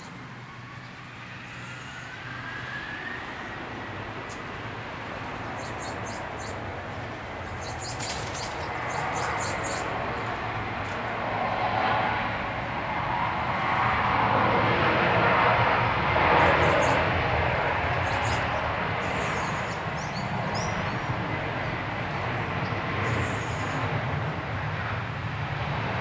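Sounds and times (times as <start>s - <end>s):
distant traffic rush: 0.0s - 26.0s
small birds chirping: 5.5s - 6.6s, 7.4s - 10.0s, 16.4s - 17.0s, 18.0s - 21.1s.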